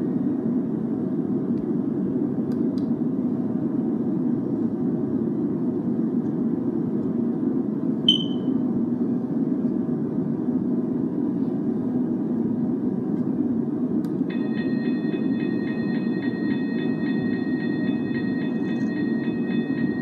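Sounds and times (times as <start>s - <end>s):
steady low hum: 0.0s - 20.0s
sharp click with ring: 8.1s - 8.5s
electronic crossing bell dinging: 8.1s - 8.6s, 14.3s - 20.0s.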